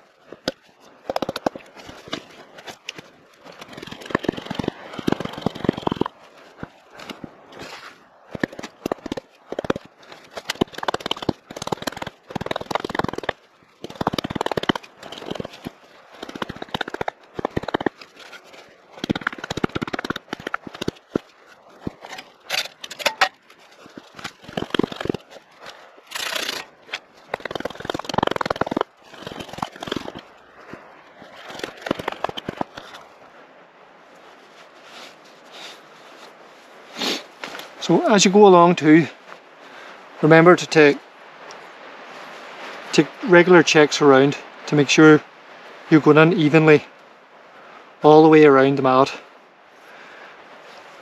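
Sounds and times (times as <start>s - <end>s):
hatchet chopping wood: 0.4s - 2.2s.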